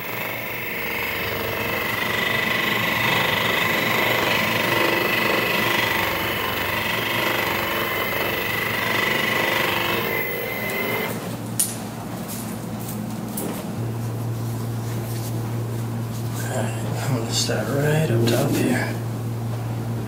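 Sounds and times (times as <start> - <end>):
massage gun running: 0.0 - 11.2.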